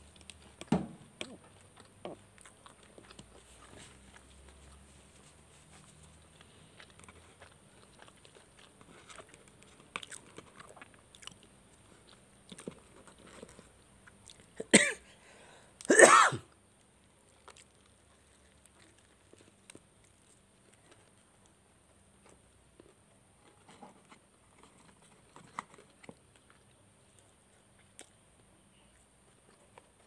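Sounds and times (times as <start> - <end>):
person sneezing or coughing: 14.7 - 15.1, 15.8 - 16.5.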